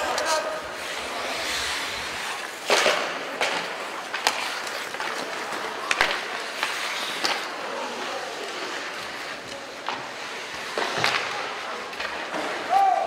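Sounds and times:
hockey sticks and puck clacking: 0.0 - 13.0
skate blades scraping ice: 0.0 - 13.0.

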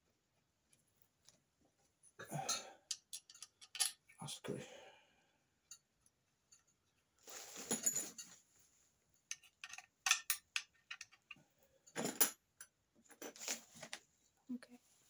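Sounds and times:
metal parts clattering: 2.9 - 4.0, 9.3 - 12.4
small metal clinks and clicks: 2.9 - 4.0, 5.6 - 6.9, 9.3 - 12.7.

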